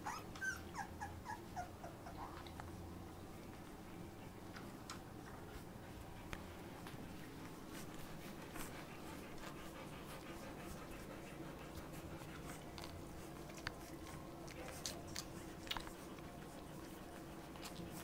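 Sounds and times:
dog panting softly: 0:00.0 - 0:18.0
puppies suckling smacking clicks: 0:02.2 - 0:02.8, 0:04.5 - 0:18.0.

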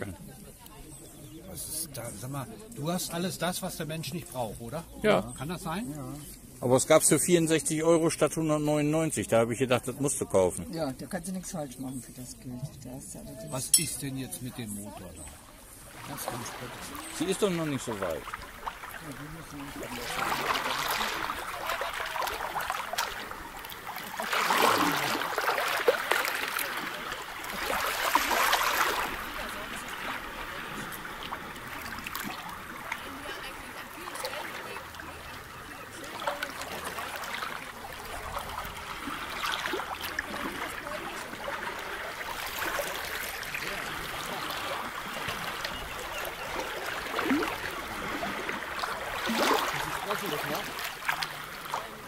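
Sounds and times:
water splashing around boat: 0:00.0 - 0:52.0.

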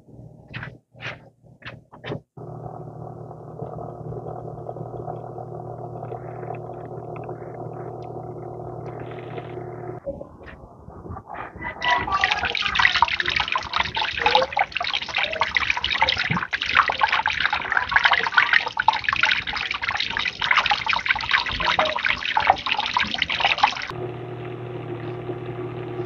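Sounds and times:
water gushing onto concrete: 0:12.0 - 0:23.9.

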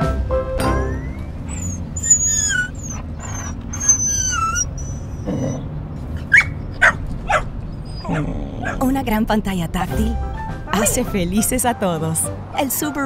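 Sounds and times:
dog yipping: 0:00.9 - 0:05.5, 0:06.2 - 0:08.8
dog whimpering: 0:00.9 - 0:09.0.

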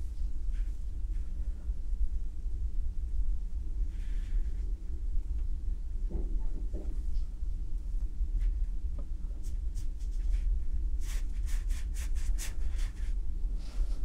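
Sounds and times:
steady low hum: 0:00.0 - 0:14.0
brush strokes on paper: 0:09.4 - 0:14.0.

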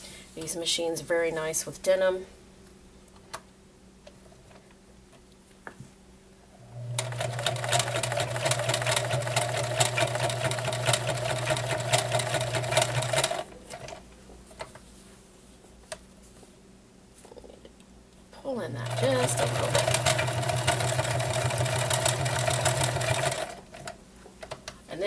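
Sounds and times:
sewing machine stitching: 0:06.8 - 0:14.0, 0:18.8 - 0:23.9.

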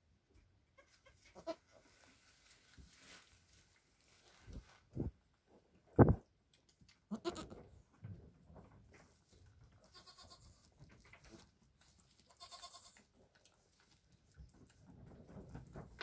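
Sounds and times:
goats bleating softly: 0:00.7 - 0:01.8, 0:07.1 - 0:07.7, 0:09.8 - 0:10.7, 0:12.2 - 0:13.1.

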